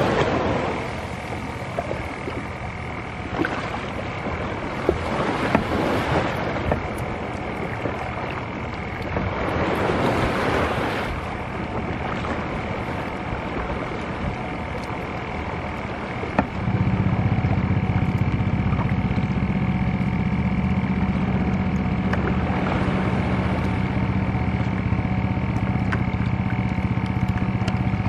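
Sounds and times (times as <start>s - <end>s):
paddle strokes splashing water: 0.0s - 28.0s.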